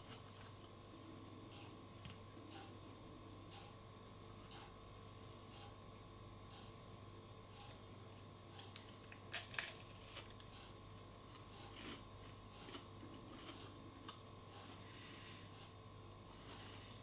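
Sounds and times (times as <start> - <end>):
macaron breaking open: 9.2 - 10.0.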